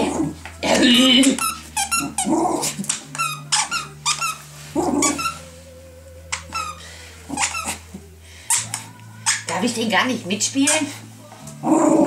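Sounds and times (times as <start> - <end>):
squeaky toy squeaking: 0.6 - 5.5, 6.3 - 9.8.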